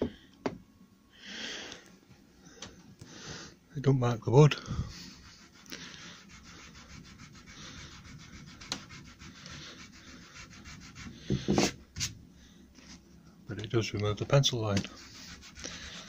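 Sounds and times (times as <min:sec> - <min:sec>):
rubber eraser scrubbing on wood: 0:04.9 - 0:12.1, 0:14.9 - 0:16.0.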